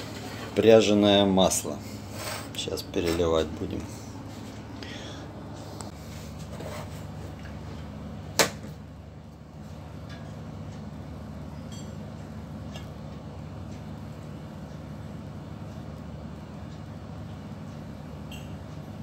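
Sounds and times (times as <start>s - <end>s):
low hum of shipboard machinery: 0.0s - 19.0s.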